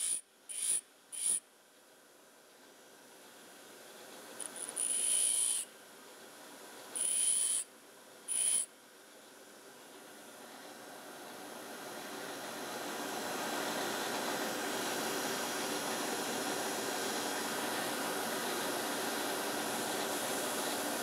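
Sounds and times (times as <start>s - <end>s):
bench grinder whirring: 0.0s - 1.4s, 4.4s - 5.6s, 7.0s - 7.6s, 8.3s - 8.7s.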